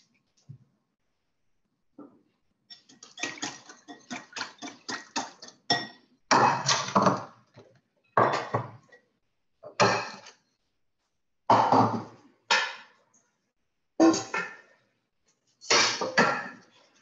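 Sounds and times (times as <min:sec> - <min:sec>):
utensils and bowl clattering: 0:02.7 - 0:07.3.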